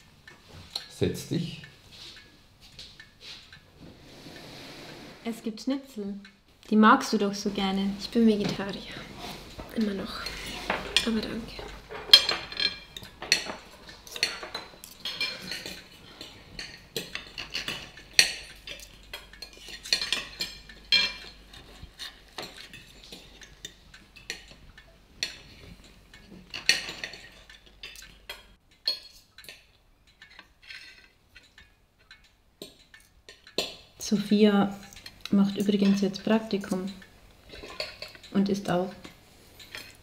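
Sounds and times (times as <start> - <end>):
cutlery clinking on plates: 9.6 - 33.9, 36.7 - 38.4, 39.0 - 40.0.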